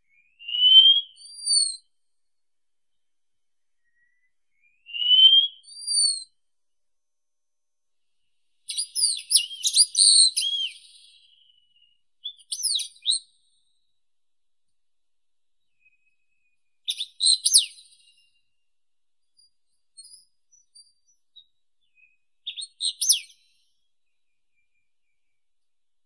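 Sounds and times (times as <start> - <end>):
bird whistling: 0.2 - 1.8, 3.8 - 6.3, 8.7 - 13.2, 16.9 - 18.2, 22.0 - 23.4
high bird chirping: 8.7 - 13.2, 16.9 - 18.2, 20.0 - 23.4.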